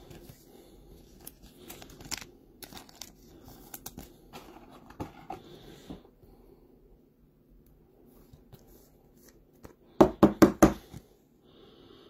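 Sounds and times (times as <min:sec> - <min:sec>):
cards sliding and snapping: 0:01.1 - 0:05.1.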